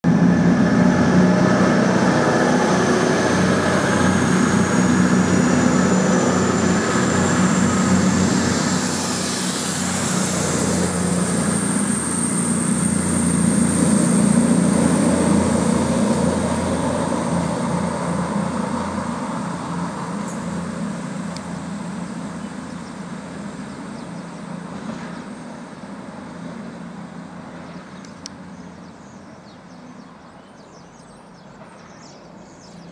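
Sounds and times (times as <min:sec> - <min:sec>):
diesel train engine drone: 0:00.0 - 0:32.9.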